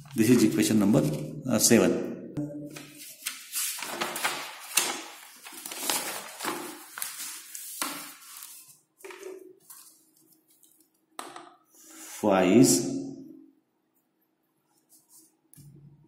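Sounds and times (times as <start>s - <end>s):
paper rustling: 0.0s - 1.2s, 2.8s - 11.0s.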